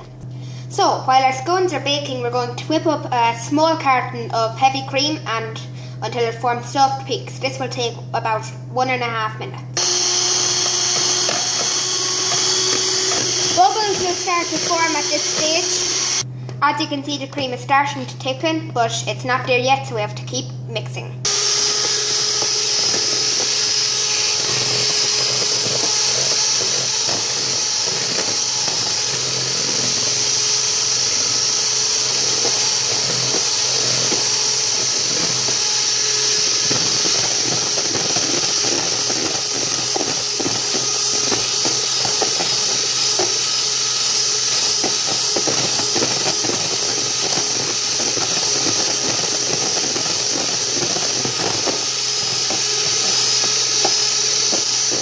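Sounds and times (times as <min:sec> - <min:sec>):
electric hand mixer whining: 0:09.8 - 0:16.3, 0:21.2 - 0:55.0.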